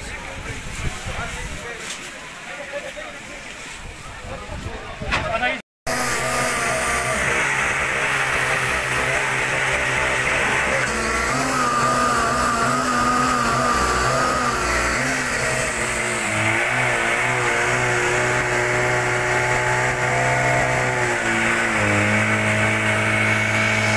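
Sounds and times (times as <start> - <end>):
fire pump engine running: 5.9 - 23.9.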